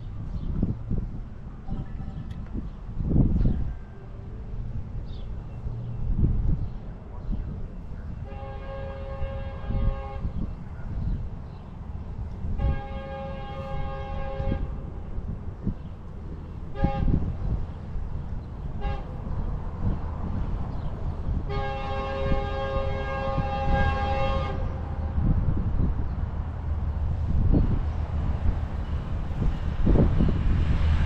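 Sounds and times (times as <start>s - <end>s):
train horn blasts: 8.2s - 10.6s, 12.4s - 15.0s, 16.7s - 17.5s, 18.7s - 19.4s, 21.3s - 25.6s
steady low rumble: 9.6s - 31.0s.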